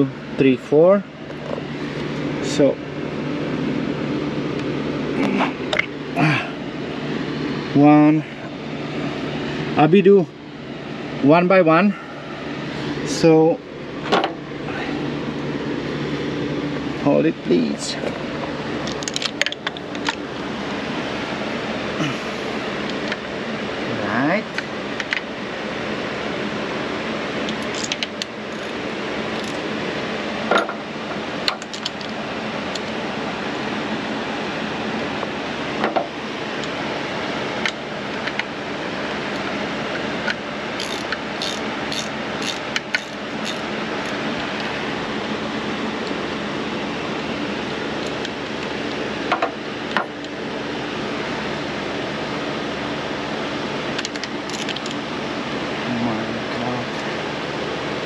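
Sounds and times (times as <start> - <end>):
hand tools clicking on engine: 18.8 - 20.2, 27.4 - 29.7, 31.4 - 33.0, 40.2 - 44.7, 54.0 - 55.0.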